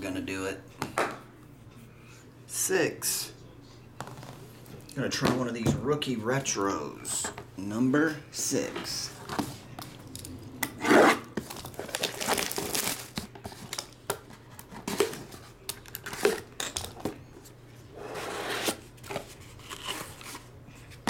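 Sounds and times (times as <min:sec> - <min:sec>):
cardboard box opening: 0:10.9 - 0:13.6
shrink wrap crinkling: 0:11.4 - 0:14.0.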